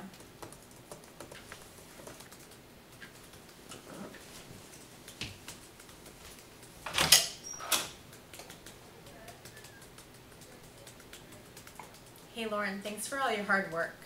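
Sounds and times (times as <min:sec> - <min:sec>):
typing on a laptop keyboard: 0:00.0 - 0:03.8, 0:04.8 - 0:06.8, 0:07.8 - 0:12.4.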